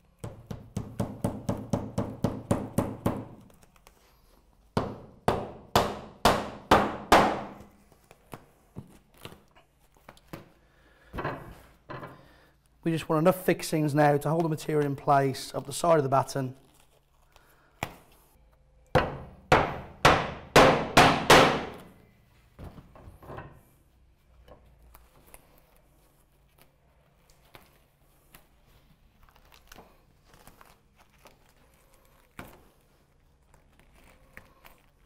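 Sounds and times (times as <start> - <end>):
hammer driving a nail: 4.8 - 7.6, 19.0 - 21.9.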